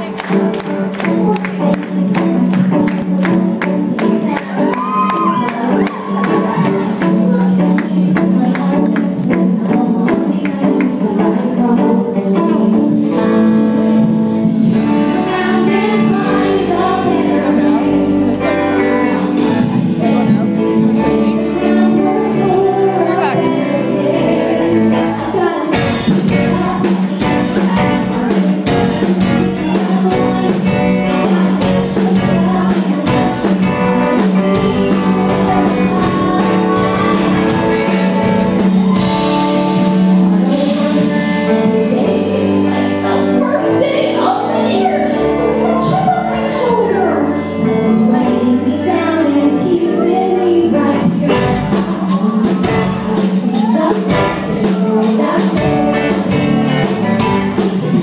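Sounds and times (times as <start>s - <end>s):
live pop-rock band: 0.0s - 58.0s
singers on microphones: 0.0s - 58.0s
drum kit beat: 12.9s - 21.5s, 25.7s - 43.6s, 51.2s - 58.0s.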